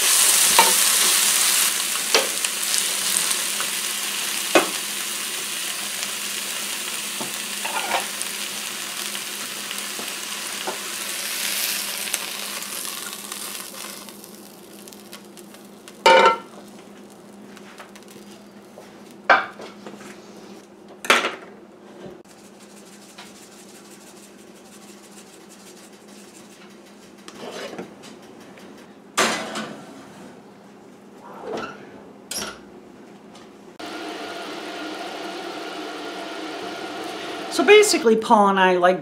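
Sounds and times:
food sizzling in a pan: 0:00.0 - 0:19.6, 0:33.8 - 0:38.0.

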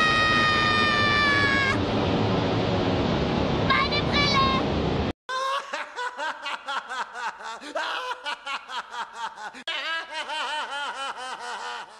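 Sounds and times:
person laughing: 0:05.3 - 0:11.9.

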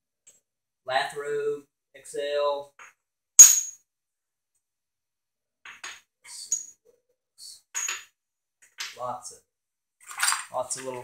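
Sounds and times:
metal tool bits clinking: 0:03.4 - 0:03.8.

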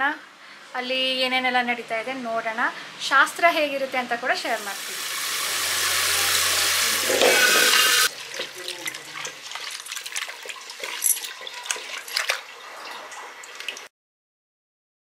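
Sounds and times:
tap water pouring into a pot: 0:04.7 - 0:13.9
small splashes: 0:07.2 - 0:13.9.

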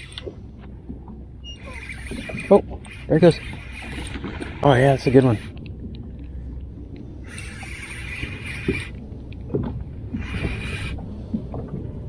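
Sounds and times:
fishing reel whirring: 0:01.4 - 0:05.6, 0:07.2 - 0:09.0, 0:10.2 - 0:11.0.

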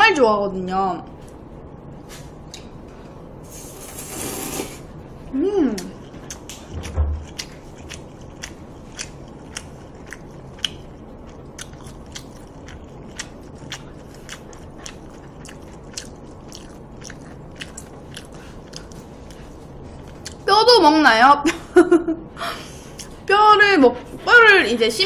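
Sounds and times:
person chewing food: 0:05.8 - 0:20.4.

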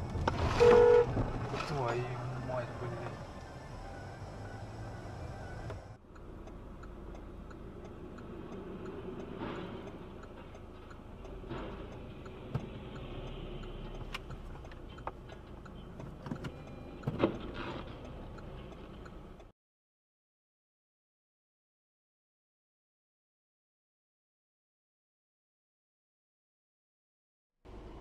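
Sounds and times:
engine and road hum: 0:00.0 - 0:19.6, 0:27.6 - 0:28.0.

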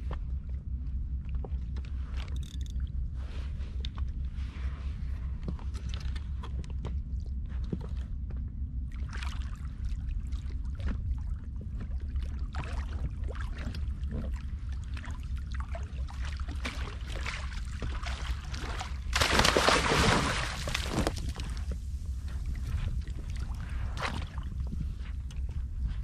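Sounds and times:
wind rumble on microphone: 0:00.0 - 0:26.0
water slapping against boat hull: 0:10.7 - 0:21.8
loud splash of net in water: 0:19.1 - 0:21.1.

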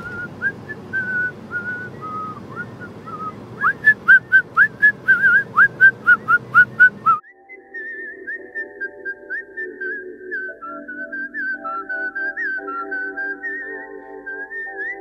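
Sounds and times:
car cabin road noise: 0:00.0 - 0:07.2
man whistling a tune: 0:00.0 - 0:15.0.

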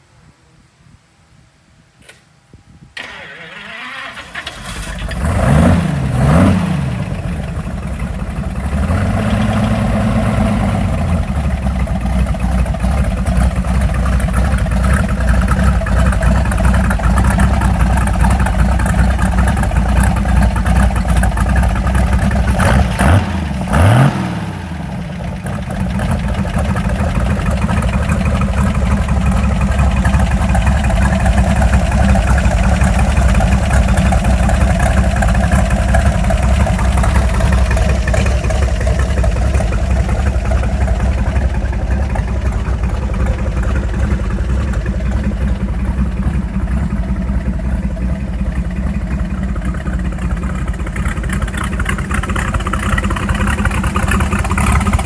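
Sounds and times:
engine starting and revving: 0:03.0 - 0:13.5, 0:14.3 - 0:47.5
engine idling: 0:03.0 - 0:55.0.

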